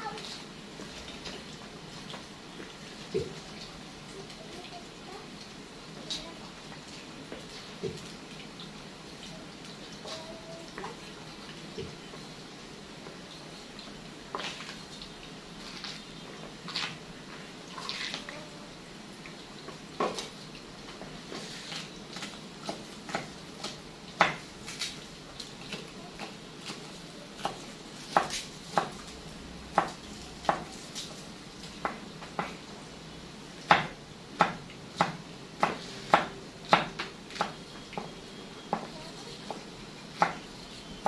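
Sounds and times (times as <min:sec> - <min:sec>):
knife chopping on wooden board: 0:22.6 - 0:24.5, 0:27.4 - 0:29.0, 0:29.7 - 0:30.8, 0:33.7 - 0:38.1, 0:38.7 - 0:40.5.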